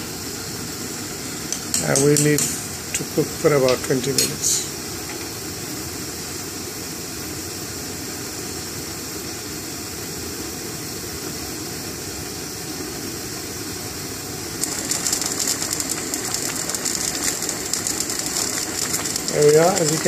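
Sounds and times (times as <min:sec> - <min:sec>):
gas burner roaring: 0:00.0 - 0:20.0
lentils bubbling at a boil: 0:14.3 - 0:20.0.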